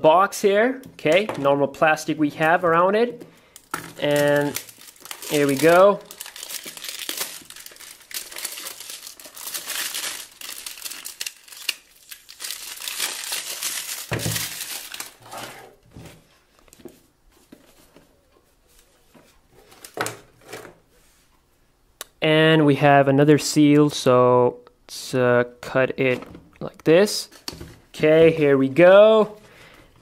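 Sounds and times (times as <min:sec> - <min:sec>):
plastic wrap tearing and crinkling: 0:03.6 - 0:15.5.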